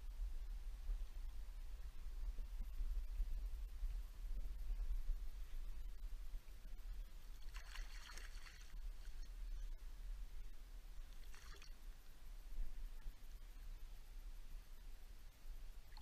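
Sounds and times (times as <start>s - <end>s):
low steady rumble: 0.0s - 16.0s
river water splashing: 7.4s - 9.3s, 11.1s - 11.8s.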